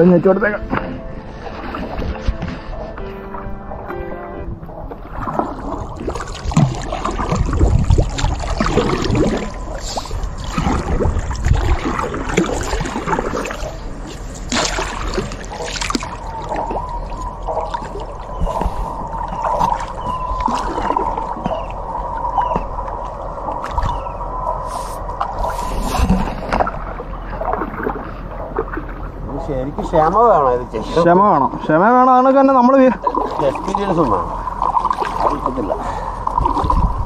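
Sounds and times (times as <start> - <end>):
water gurgling along hull: 0.0 - 37.0
paddle strokes splashing: 0.6 - 29.1, 33.0 - 36.8.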